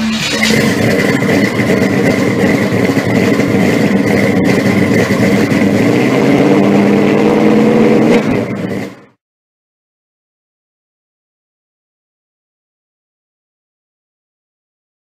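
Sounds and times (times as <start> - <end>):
engine running loudly: 0.0 - 9.2.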